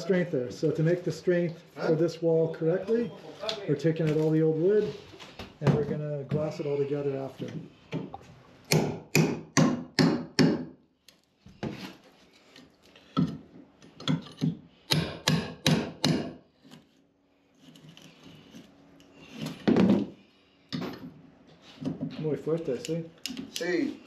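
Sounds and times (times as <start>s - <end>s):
hammer striking chisel: 8.7s - 10.7s, 14.0s - 16.4s.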